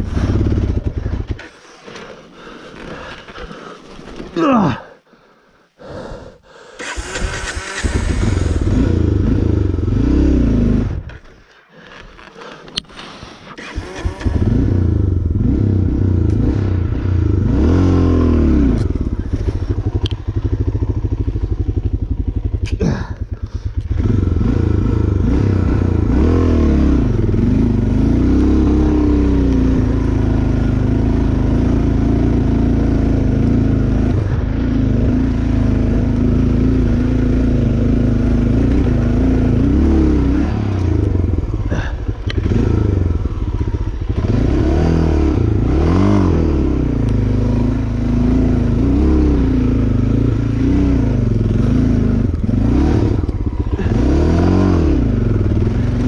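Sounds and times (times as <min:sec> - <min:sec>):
vehicle engine revving under load: 0:06.8 - 0:11.1, 0:13.6 - 0:56.0.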